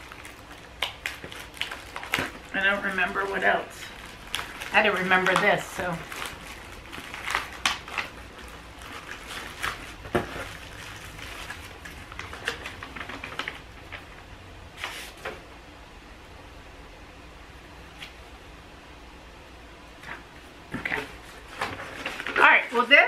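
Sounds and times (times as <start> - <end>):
plastic bag crinkling: 0.0 - 14.1
paper rustling: 14.8 - 15.4, 20.8 - 22.9.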